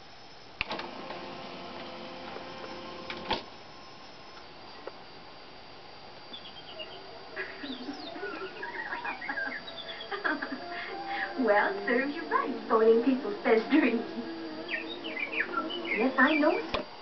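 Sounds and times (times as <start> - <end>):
tape mechanism motor whine: 0.0 - 17.0
faint bird chirps from tv: 6.2 - 16.7.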